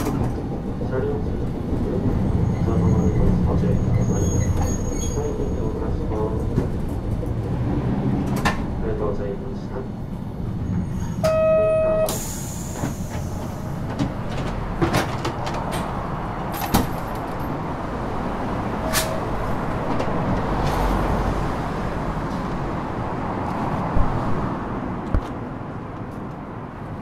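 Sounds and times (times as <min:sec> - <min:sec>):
tram rumble: 0:00.0 - 0:27.0
air hissing: 0:12.1 - 0:13.4.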